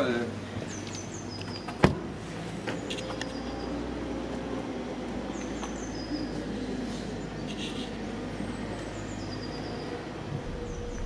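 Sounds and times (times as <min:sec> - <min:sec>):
car driving hum: 0:00.2 - 0:11.0
small bird chirping: 0:07.4 - 0:08.0.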